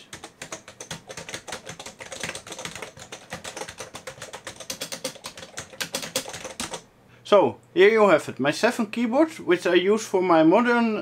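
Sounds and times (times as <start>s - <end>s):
fast typing key clicks: 0.0s - 6.8s.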